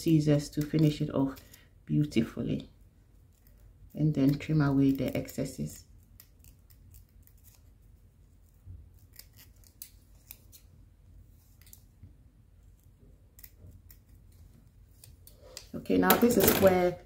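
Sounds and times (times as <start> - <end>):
scissors snipping: 9.0 - 10.7.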